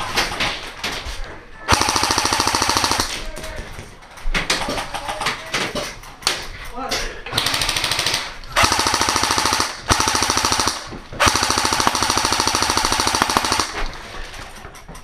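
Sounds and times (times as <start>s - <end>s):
airsoft gun firing bursts: 1.7s - 3.2s, 7.4s - 14.0s.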